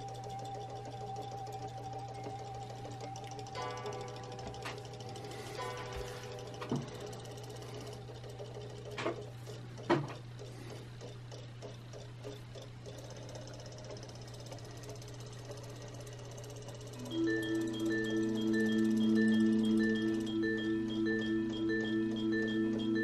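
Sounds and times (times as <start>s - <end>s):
toy motor whirring: 0.0s - 23.0s
marimba-like music: 17.0s - 23.0s.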